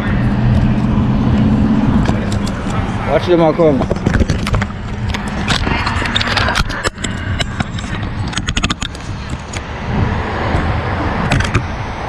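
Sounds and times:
road rumble: 0.0s - 12.0s
wind: 0.0s - 12.0s
bicycle clicks and rattles: 3.8s - 9.7s.

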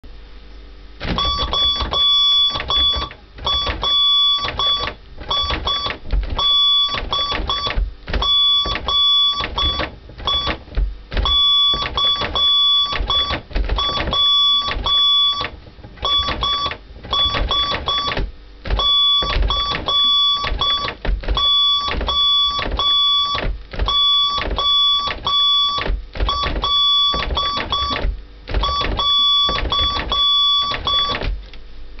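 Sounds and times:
morse code tone beeping: 1.2s - 18.2s, 18.8s - 31.2s
refrigerator door knocks and rattles: 25.8s - 30.2s.

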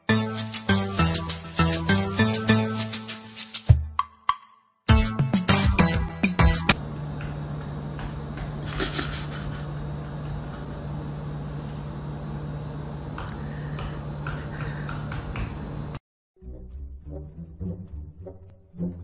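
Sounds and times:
low electrical hum: 6.8s - 16.0s
thin high whine: 6.8s - 16.0s.

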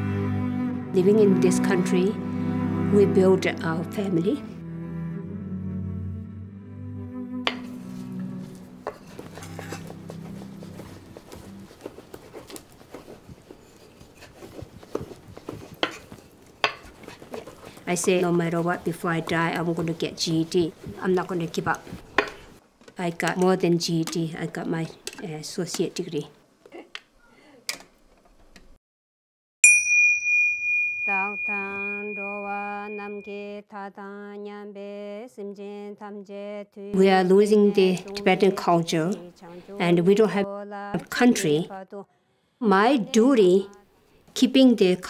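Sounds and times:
background music: 0.0s - 12.5s
small bell ringing: 29.6s - 33.4s.

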